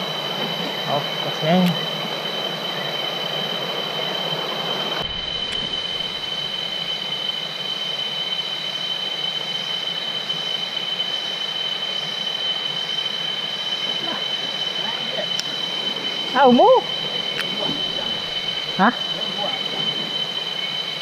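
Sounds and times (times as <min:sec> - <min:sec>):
insects droning: 0:00.0 - 0:21.0
stream running over rapids: 0:10.6 - 0:21.0.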